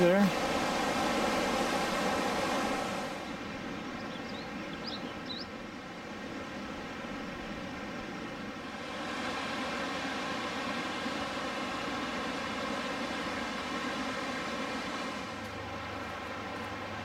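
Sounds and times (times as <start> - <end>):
river rushing: 0.0 - 17.0
high bird chirps: 4.0 - 5.5.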